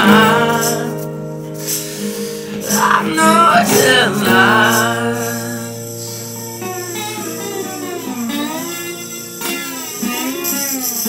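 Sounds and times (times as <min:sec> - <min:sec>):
person singing: 0:00.0 - 0:08.3
guitar chords: 0:00.0 - 0:11.0.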